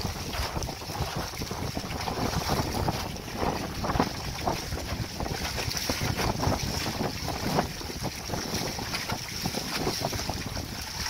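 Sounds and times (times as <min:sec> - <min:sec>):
water splashing against canoe hull: 0:00.0 - 0:11.0
wind buffeting microphone: 0:00.0 - 0:11.0.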